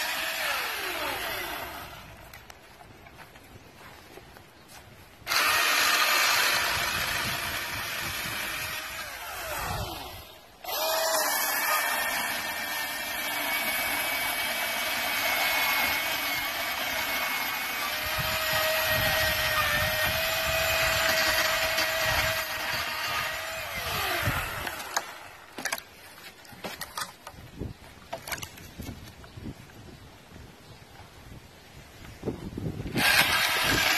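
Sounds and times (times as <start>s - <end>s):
chainsaw cutting branch: 0.0s - 2.2s, 5.2s - 25.8s, 32.9s - 33.9s.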